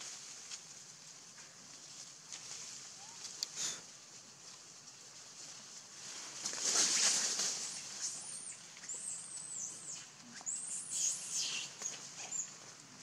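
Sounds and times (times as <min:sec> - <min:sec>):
infant monkey squeaking: 0:07.5 - 0:12.6.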